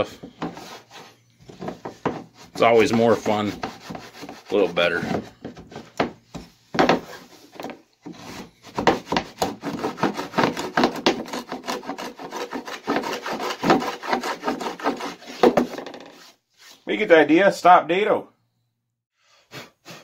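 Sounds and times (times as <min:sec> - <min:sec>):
plane iron shaving wood: 0:00.0 - 0:01.1, 0:01.8 - 0:05.3, 0:08.1 - 0:16.7.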